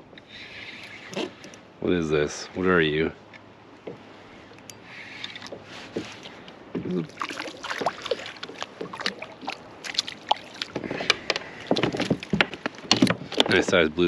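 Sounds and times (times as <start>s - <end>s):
water sloshing around kayak: 4.0s - 13.8s
fish splashing into water: 7.1s - 10.8s.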